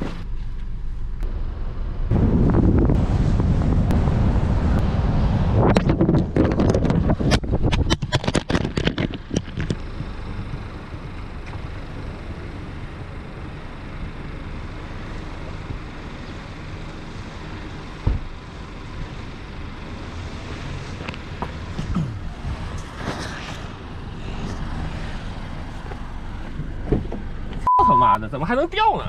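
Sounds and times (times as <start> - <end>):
road traffic rumble: 0.0 - 29.0
camera clattering on road: 5.6 - 10.5, 21.0 - 21.9
thump: 18.0 - 18.3.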